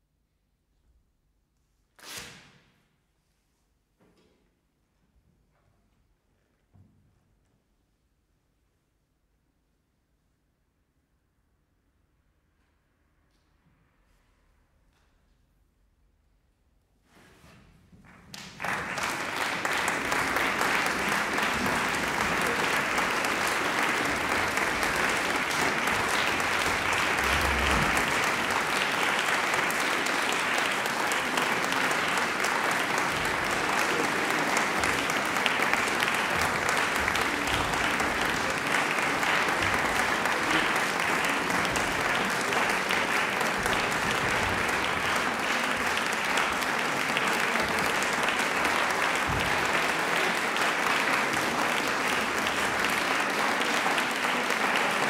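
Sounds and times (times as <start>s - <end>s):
audience applauding: 18.1s - 55.0s.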